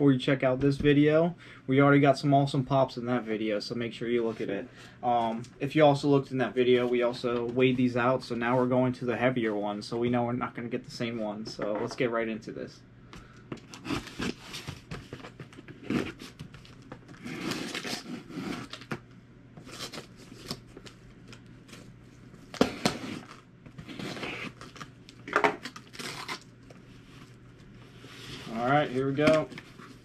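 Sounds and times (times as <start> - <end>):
cardboard and tape rustling: 13.5 - 19.0
box cutter slicing packing tape: 17.2 - 18.8.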